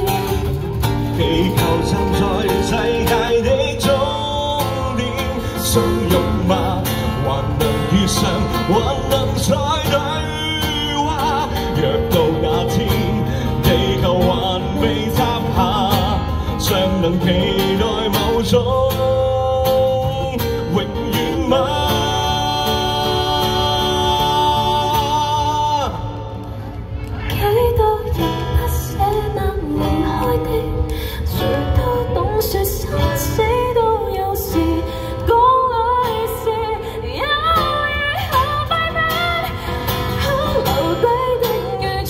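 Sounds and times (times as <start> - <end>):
person singing: 0.0 - 26.2, 27.2 - 42.0
acoustic guitar strumming: 0.0 - 26.6, 27.4 - 42.0.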